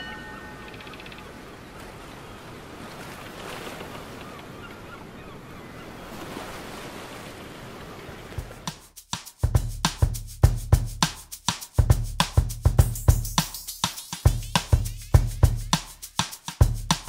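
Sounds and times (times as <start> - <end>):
ocean surf washing in: 0.0 - 8.8.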